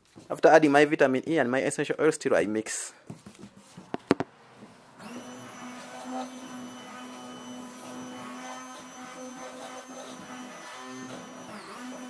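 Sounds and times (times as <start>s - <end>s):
immersion blender whining: 5.0s - 12.0s.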